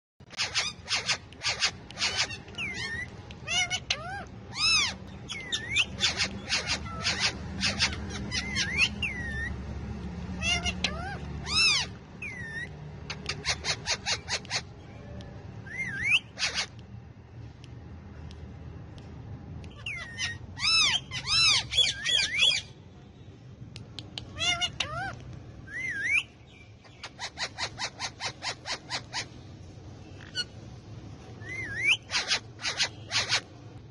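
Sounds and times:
parakeets squawking: 0.2s - 17.1s, 19.5s - 22.8s, 24.2s - 33.9s
parakeet whistled notes: 15.6s - 16.7s, 31.4s - 33.4s.

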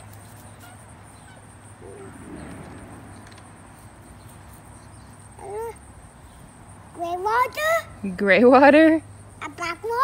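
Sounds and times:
young child voice: 5.4s - 5.8s, 6.9s - 8.0s, 9.4s - 10.0s.

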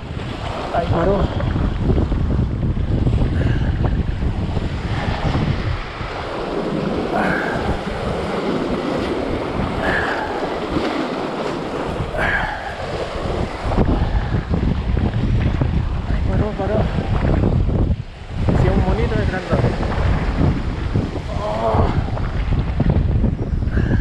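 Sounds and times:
surf breaking over rocks: 0.0s - 24.0s
wind buffeting microphone: 0.0s - 24.0s.

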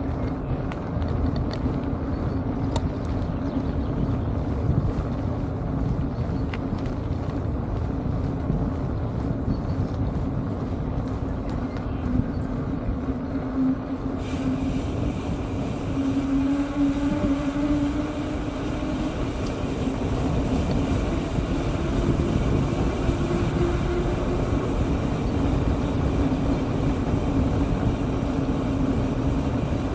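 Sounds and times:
bicycle tyre rumble on road: 0.0s - 29.9s
low hum: 0.0s - 29.9s
wind buffeting microphone: 0.0s - 29.9s.

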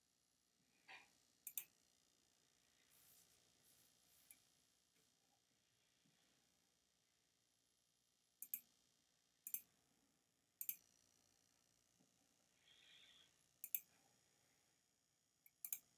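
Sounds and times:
faint soft rustle: 2.7s - 5.2s
computer mouse button clicking: 15.5s - 15.8s.

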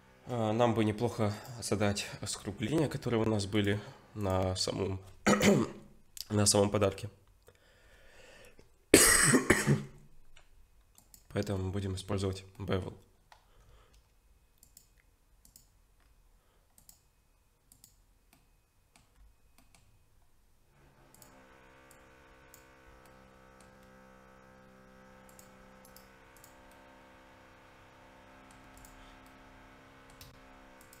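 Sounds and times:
computer mouse clicks: 10.3s - 11.5s, 13.3s - 19.9s, 21.1s - 23.9s, 25.3s - 26.8s, 28.5s - 29.4s, 30.1s - 31.0s.

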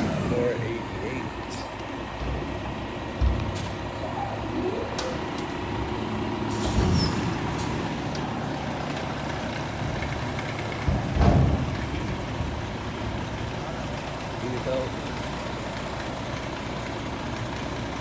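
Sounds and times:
truck engine idling: 0.0s - 18.0s
air hiss: 6.5s - 7.3s
low thump: 10.9s - 11.9s.

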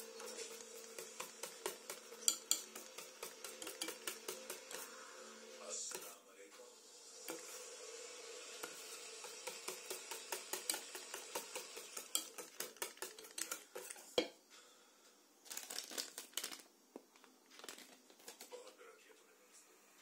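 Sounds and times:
whisk clicking against bowl: 0.2s - 4.9s, 8.6s - 14.1s.

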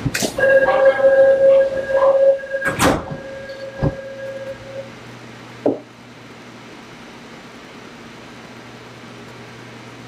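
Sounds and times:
train doors closing: 0.0s - 4.9s
door-closing warning tone: 0.2s - 5.0s.

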